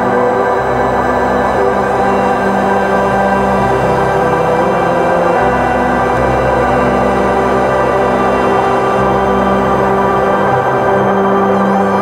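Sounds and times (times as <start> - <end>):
ambient drone music: 0.0 - 12.0.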